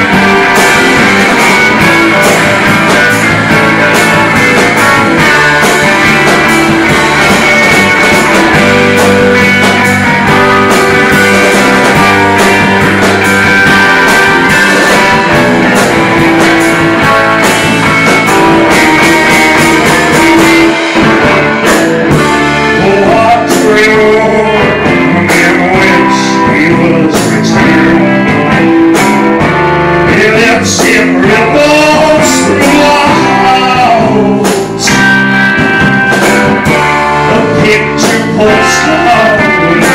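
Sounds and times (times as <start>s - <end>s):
live rock band playing: 0.0s - 39.9s
man singing: 20.2s - 28.8s, 30.0s - 35.5s, 37.1s - 39.9s.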